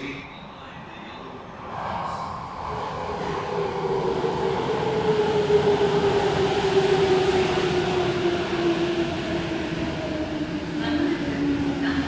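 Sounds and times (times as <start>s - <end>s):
subway train motor whine: 2.6s - 12.0s.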